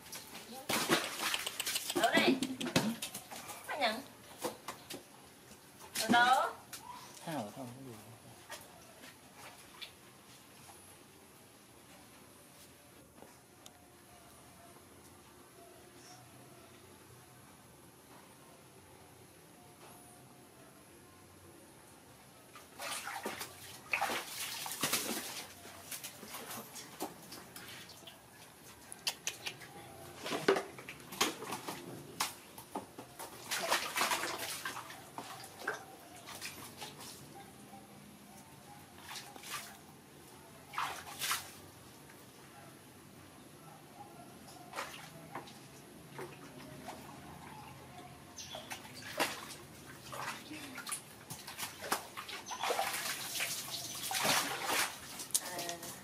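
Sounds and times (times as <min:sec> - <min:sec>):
water splashing in plastic tub: 0:00.0 - 0:05.1, 0:22.6 - 0:28.2, 0:30.2 - 0:37.2, 0:40.7 - 0:41.8, 0:48.5 - 0:56.0
water dripping into basin: 0:01.0 - 0:03.1.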